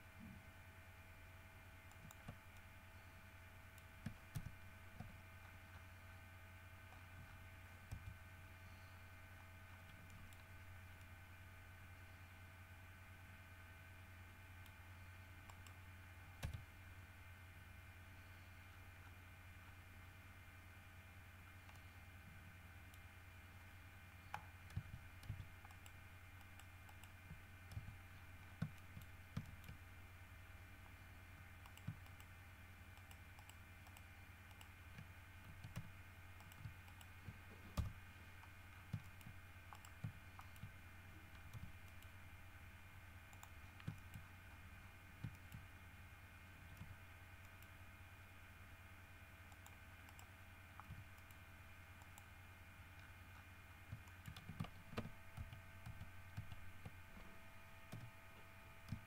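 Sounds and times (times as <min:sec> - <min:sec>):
low electrical hum: 0:00.0 - 0:59.0
mouse and keyboard clicks: 0:01.9 - 0:02.7, 0:24.2 - 0:29.8, 0:31.6 - 0:42.1, 0:43.3 - 0:44.3, 0:52.9 - 0:57.3.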